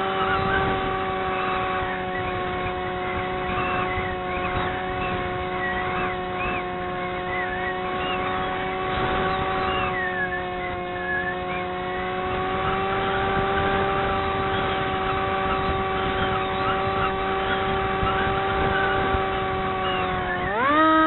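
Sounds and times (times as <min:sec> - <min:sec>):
model airplane motor and propeller: 0:00.0 - 0:21.0.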